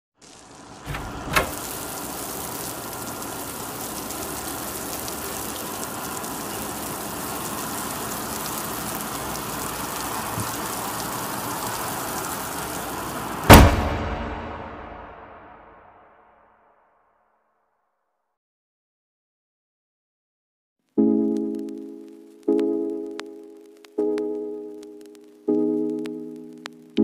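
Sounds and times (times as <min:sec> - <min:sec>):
rain-like hiss with crackling: 0:00.2 - 0:15.3, 0:20.9 - 0:27.0
loud boom: 0:13.5 - 0:16.0
sharp hit: 0:13.5 - 0:16.0.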